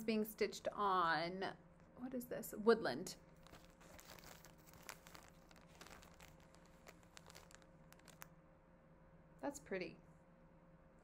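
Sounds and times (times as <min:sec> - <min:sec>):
plastic bag crinkling: 0:03.3 - 0:08.3.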